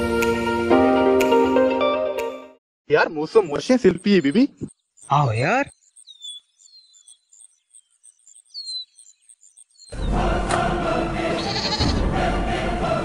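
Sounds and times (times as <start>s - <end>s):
faint high falling chirps: 3.3s - 10.0s
dramatic music with choir: 9.9s - 13.0s.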